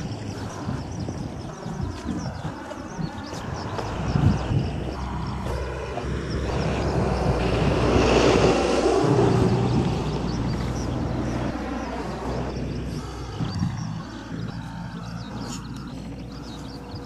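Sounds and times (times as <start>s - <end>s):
passing vehicle rushing: 3.6s - 16.4s.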